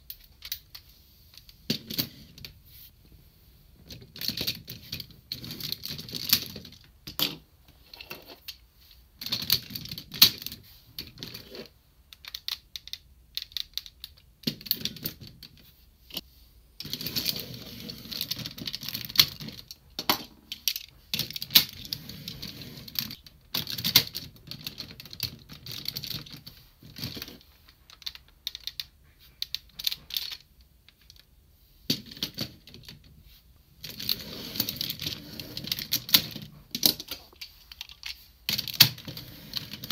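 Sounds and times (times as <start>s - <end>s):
plastic toy parts clicking: 12.1s - 16.2s, 18.1s - 31.3s, 33.8s - 39.9s.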